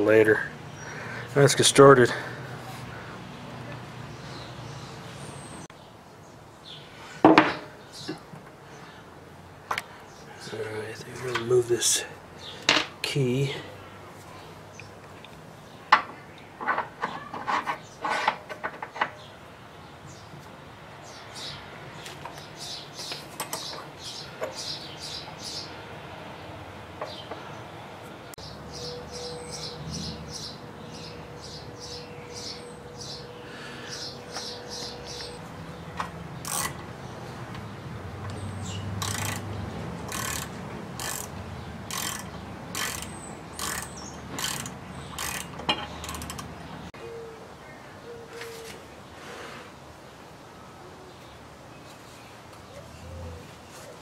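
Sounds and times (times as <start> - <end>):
ratchet wrench clicking: 36.4 - 36.8, 39.0 - 46.5.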